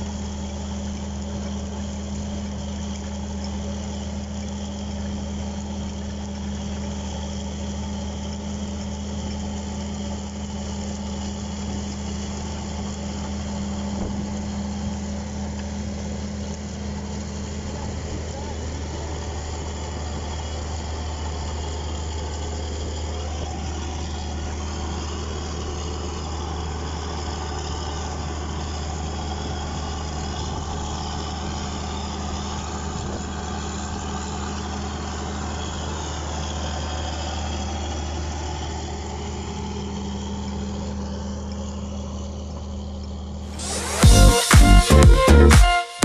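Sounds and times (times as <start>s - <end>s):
tractor diesel engine droning: 0.0s - 46.0s
electronic music: 43.5s - 46.0s.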